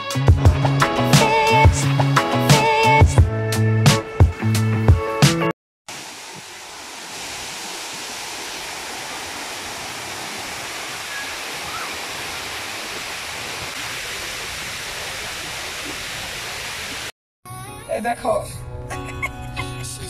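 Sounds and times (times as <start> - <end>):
water pouring down waterfall: 5.9 - 17.1.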